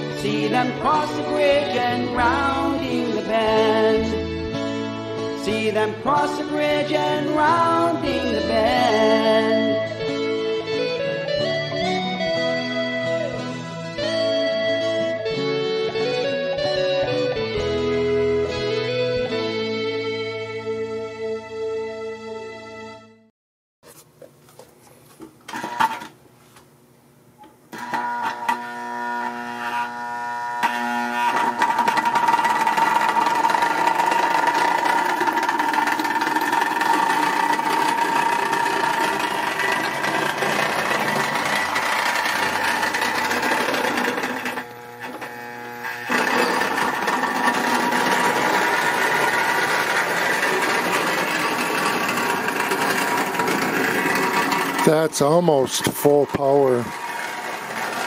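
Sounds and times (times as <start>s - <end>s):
toy train motor whine: 27.7s - 58.0s.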